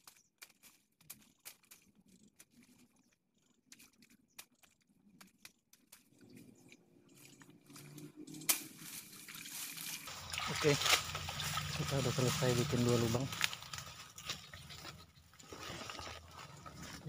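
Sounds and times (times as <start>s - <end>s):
leaves and stems rustling: 0.0s - 17.0s
low steady rumble: 10.1s - 17.0s.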